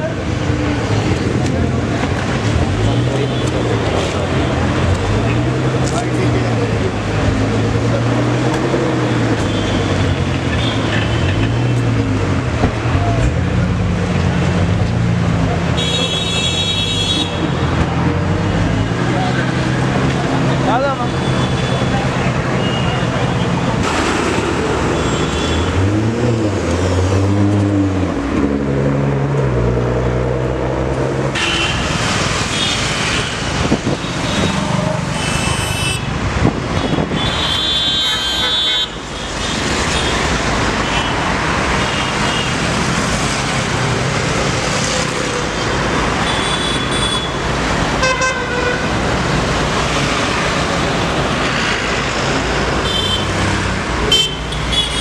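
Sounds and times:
engines: 0:00.0 - 0:55.0
car horns honking: 0:31.3 - 0:32.8, 0:36.8 - 0:42.6, 0:46.2 - 0:47.4, 0:48.0 - 0:49.0, 0:52.8 - 0:53.4, 0:54.0 - 0:55.0.

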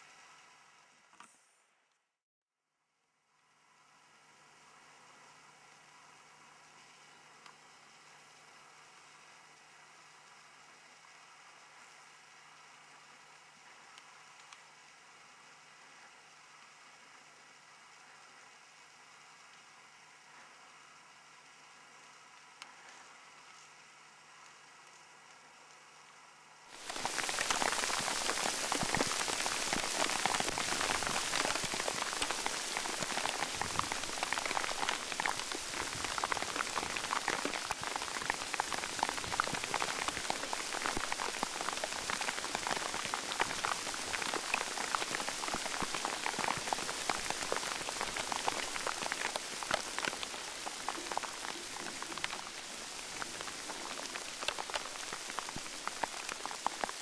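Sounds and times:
rain falling on leaves: 0:26.7 - 0:57.0.

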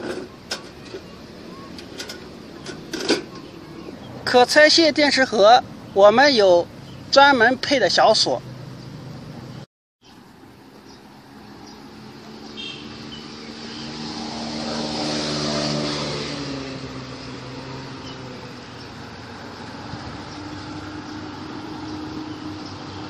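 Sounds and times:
vehicle passing by: 0:10.3 - 0:23.0.

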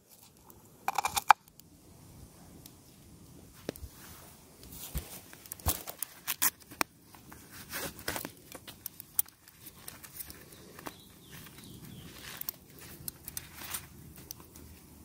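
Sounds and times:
cloth rustling and crinkling: 0:03.9 - 0:14.9.

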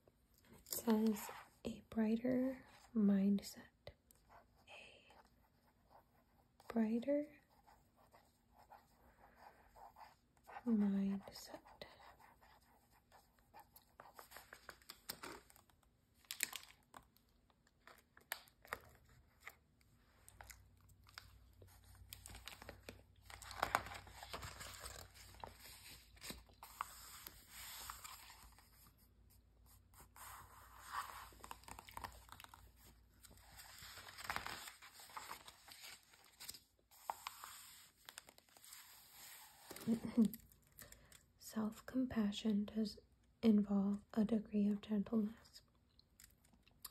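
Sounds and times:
page turning rustle: 0:13.7 - 0:17.2, 0:20.2 - 0:28.9, 0:30.2 - 0:41.0.

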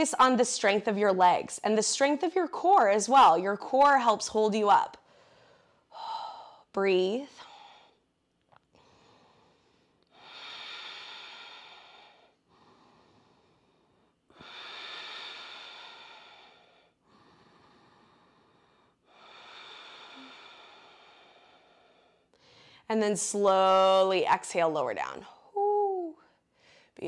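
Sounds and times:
woman breathing slowly: 0:05.0 - 0:06.7, 0:07.3 - 0:22.9, 0:26.2 - 0:27.0.

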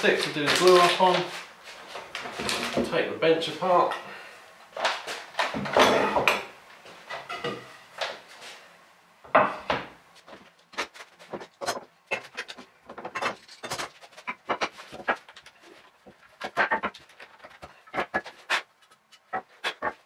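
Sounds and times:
wooden parts knocking and sliding: 0:09.3 - 0:20.0.

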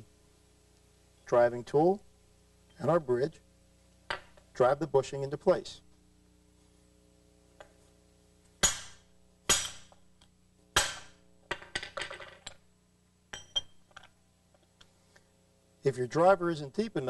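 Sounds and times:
hammer striking metal: 0:08.6 - 0:10.0, 0:10.8 - 0:11.2
light metal clinks and taps: 0:13.3 - 0:14.9.

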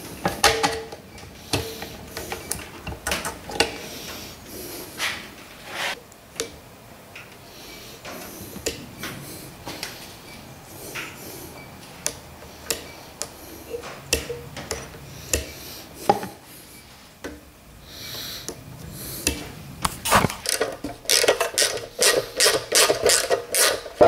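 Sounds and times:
ratchet wrench strokes: 0:20.5 - 0:24.0.

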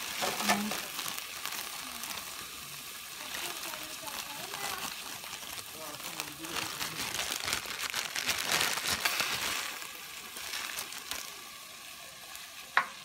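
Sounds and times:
frozen berries clattering into pot: 0:00.0 - 0:02.3, 0:03.2 - 0:11.2
plastic bag crinkling: 0:00.0 - 0:02.6, 0:03.2 - 0:11.5.

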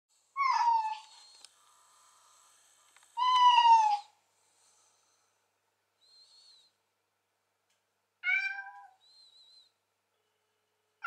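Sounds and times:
cat meow ringtone: 0:08.2 - 0:09.0.

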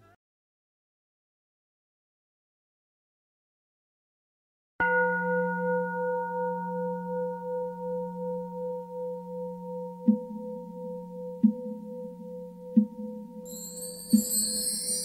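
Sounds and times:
singing bowl ringing: 0:04.8 - 0:15.0.

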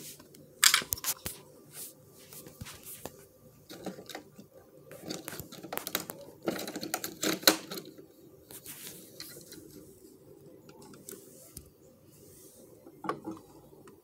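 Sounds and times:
plastic toys clicking and rattling: 0:03.7 - 0:08.0.

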